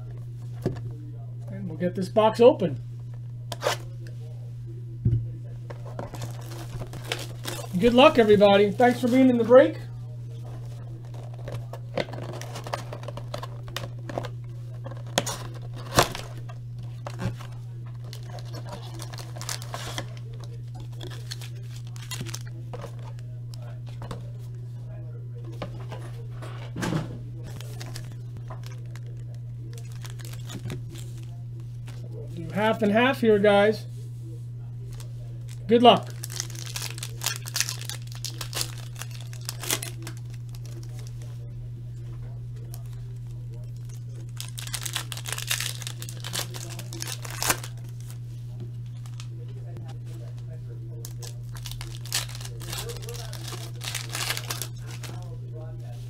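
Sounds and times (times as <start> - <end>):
steady low hum: 0.0 - 56.0
cardboard tearing and crinkling: 5.9 - 9.4, 11.1 - 23.2, 27.5 - 31.3, 34.9 - 41.3, 43.5 - 48.2, 51.0 - 55.4.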